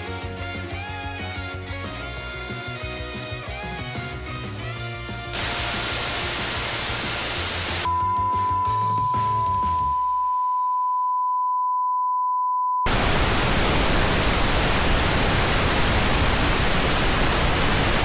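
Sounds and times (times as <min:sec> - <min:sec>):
loud tv static hiss: 0:05.4 - 0:07.9, 0:12.9 - 0:18.0
steady test tone beep: 0:07.8 - 0:12.9.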